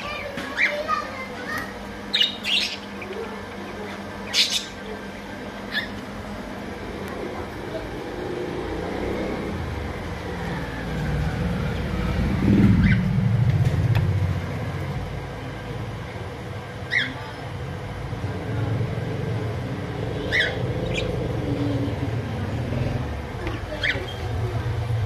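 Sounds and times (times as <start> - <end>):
steady low rumble: 5.0 - 16.8, 17.4 - 25.0
budgerigar chirps: 20.2 - 21.2.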